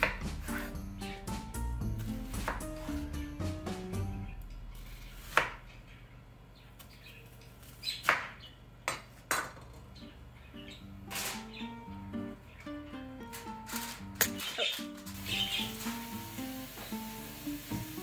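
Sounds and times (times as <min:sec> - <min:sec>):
knife chopping on cutting board: 0:00.0 - 0:00.8, 0:02.0 - 0:03.0, 0:04.9 - 0:05.6.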